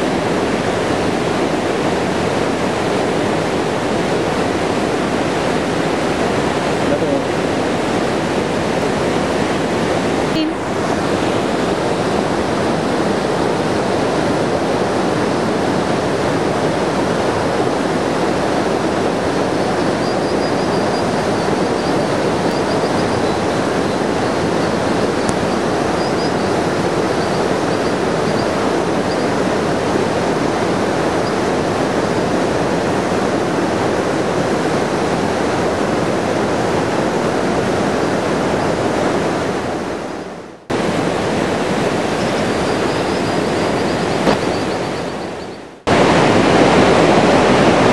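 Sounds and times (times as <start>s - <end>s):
river rushing over rocks: 0.0s - 47.9s
high-pitched bird calls: 42.1s - 45.7s.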